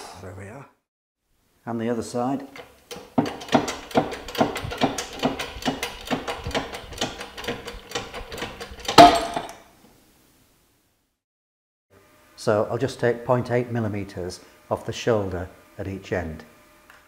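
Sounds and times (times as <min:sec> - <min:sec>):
bearing cracking free: 0:02.6 - 0:09.6.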